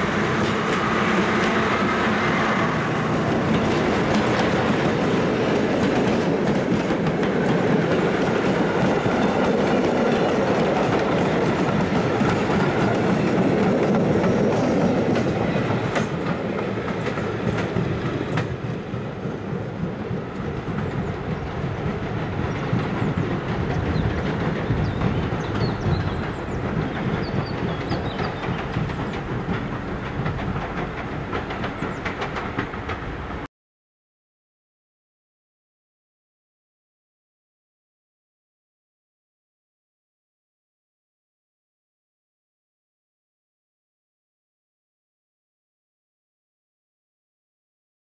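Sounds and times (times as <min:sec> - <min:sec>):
train wheels clattering over rail joints: 0:02.8 - 0:33.5.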